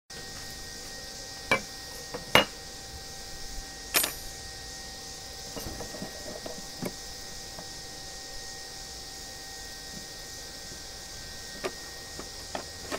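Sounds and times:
metal tools knocking on wood: 0:01.5 - 0:02.5, 0:04.0 - 0:04.2, 0:05.6 - 0:06.9
metallic ring: 0:01.5 - 0:02.6, 0:03.9 - 0:04.5, 0:05.5 - 0:06.7
pliers clinking on metal: 0:04.0 - 0:04.3.

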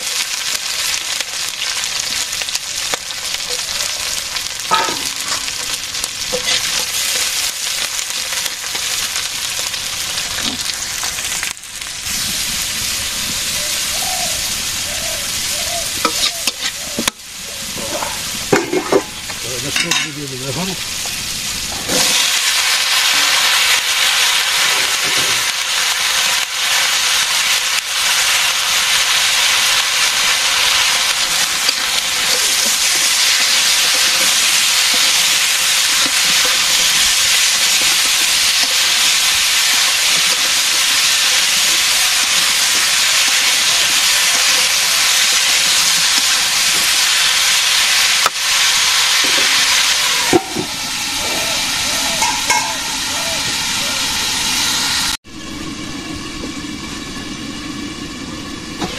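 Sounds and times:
vegetables sizzling in a wok: 0:00.0 - 0:58.9
metal lid clanking: 0:04.6 - 0:07.3, 0:16.0 - 0:20.2, 0:50.3 - 0:50.8, 0:52.1 - 0:53.0
spatula scraping: 0:06.3 - 0:07.3, 0:16.0 - 0:17.1.

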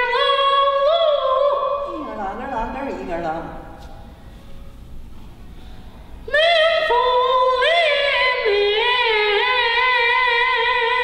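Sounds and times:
high voice singing opera: 0:00.0 - 0:01.9, 0:06.3 - 0:11.0.

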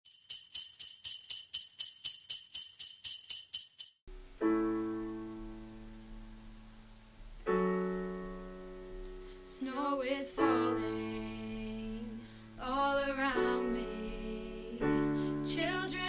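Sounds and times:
sleigh bells shaking: 0:00.0 - 0:04.1, 0:10.4 - 0:15.3.

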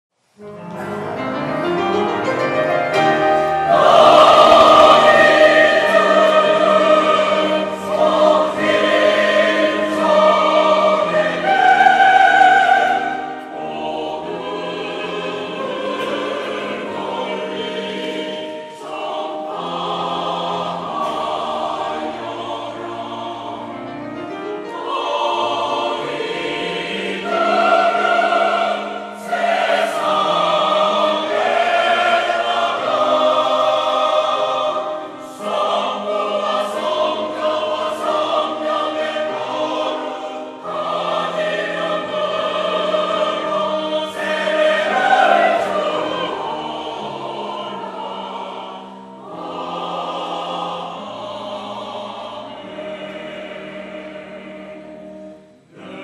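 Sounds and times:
grand piano accompaniment: 0:00.2 - 0:56.0
mixed choir singing: 0:00.4 - 0:56.0.

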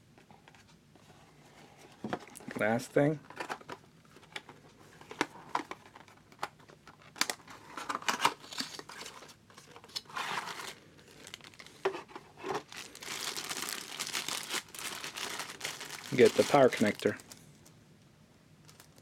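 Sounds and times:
plastic bag crinkling: 0:10.3 - 0:17.7, 0:18.6 - 0:19.0.

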